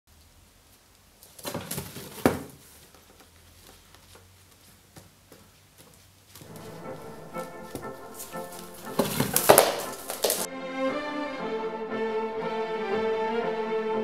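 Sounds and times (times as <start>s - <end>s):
music: 6.4s - 14.0s.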